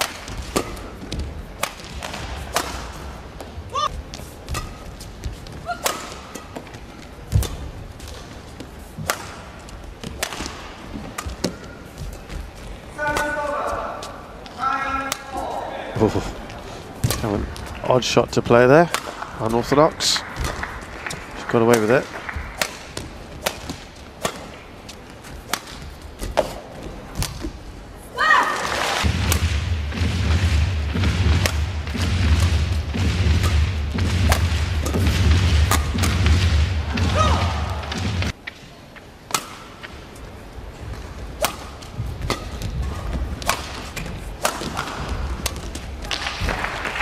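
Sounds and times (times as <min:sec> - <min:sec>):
rackets striking shuttlecock: 0:00.0 - 0:08.4, 0:09.0 - 0:12.4, 0:17.0 - 0:27.6, 0:29.0 - 0:40.2, 0:40.9 - 0:46.5
low arena background: 0:00.0 - 0:47.0.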